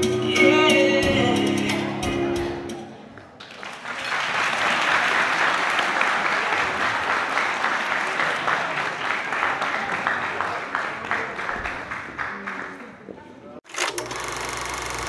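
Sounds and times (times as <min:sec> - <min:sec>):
latin dance music: 0:00.0 - 0:03.0
audience applauding: 0:03.2 - 0:13.0.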